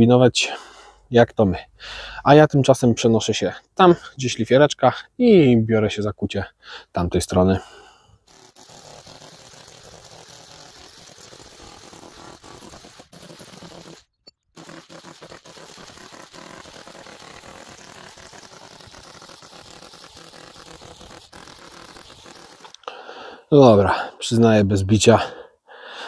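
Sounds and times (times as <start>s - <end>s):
chisel chipping concrete: 8.3s - 22.9s
concrete scraping: 8.3s - 22.9s.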